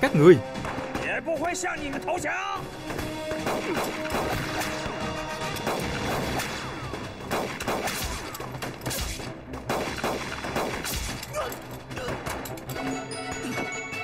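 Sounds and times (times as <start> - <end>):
pistol shots echoing: 3.3 - 11.3.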